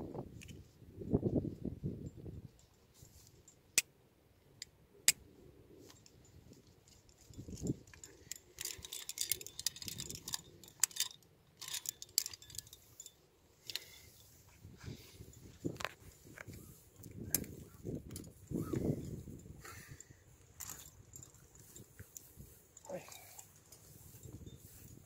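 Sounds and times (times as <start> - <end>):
sharp carabiner clicks: 4.6 - 5.2, 5.9 - 13.9, 15.7 - 22.2
metal carabiners jangling: 5.8 - 25.0.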